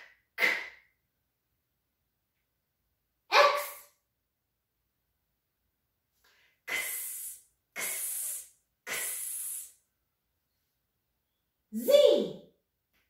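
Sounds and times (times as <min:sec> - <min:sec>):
woman hissing ks sound: 0:00.4 - 0:00.8, 0:06.6 - 0:09.9.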